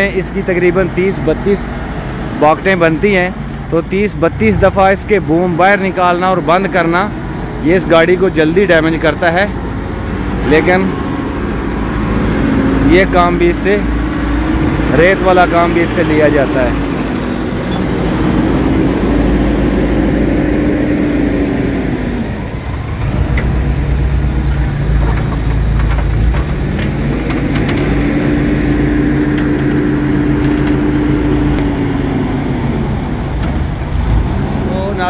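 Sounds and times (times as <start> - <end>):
engine running under hydraulic load: 10.5 - 34.4.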